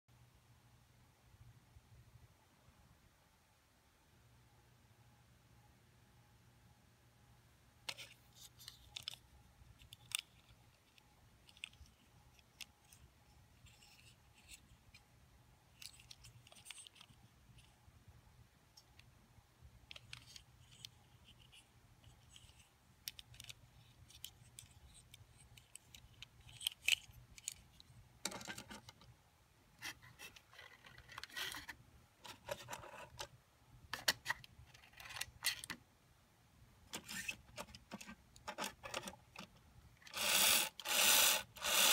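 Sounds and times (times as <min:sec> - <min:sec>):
faint low hum: 0:00.1 - 0:41.9
toy truck clicks and scrapes: 0:15.7 - 0:17.7, 0:19.9 - 0:29.0, 0:29.8 - 0:33.3, 0:37.0 - 0:41.9.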